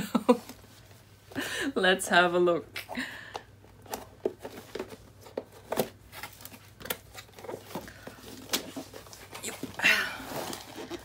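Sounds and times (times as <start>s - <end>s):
cardboard packaging clicks and rustling: 3.7s - 11.0s.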